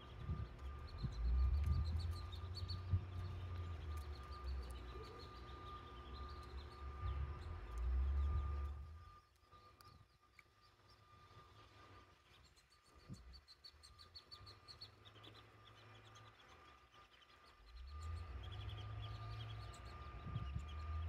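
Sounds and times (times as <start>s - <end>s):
wind buffeting microphone: 0.0s - 4.6s, 20.0s - 21.0s.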